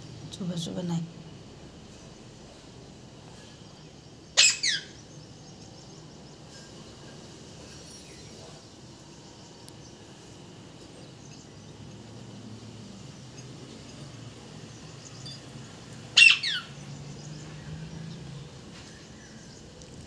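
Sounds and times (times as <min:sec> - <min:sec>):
parrot screeching: 0:04.4 - 0:05.0, 0:16.2 - 0:16.7.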